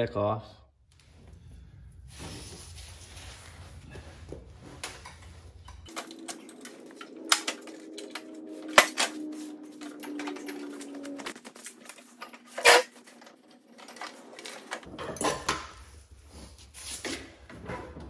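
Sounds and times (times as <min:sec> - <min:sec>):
metal pins and clips clanking: 0:04.8 - 0:15.7.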